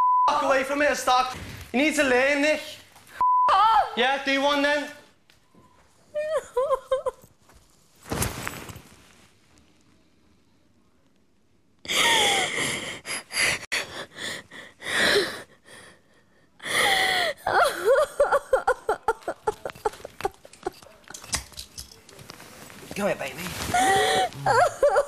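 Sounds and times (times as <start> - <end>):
woman sobbing and wailing: 6.1 - 7.3, 11.9 - 20.8, 23.7 - 25.0.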